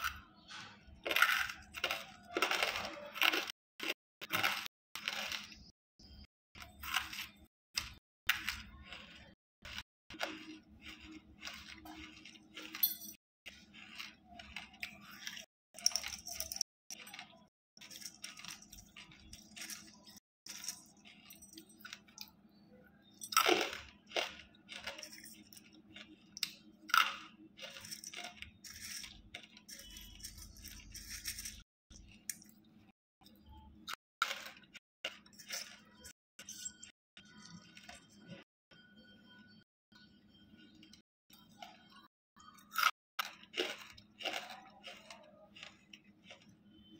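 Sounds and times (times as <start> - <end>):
crunching and chewing: 0.0 - 38.5, 40.6 - 46.9.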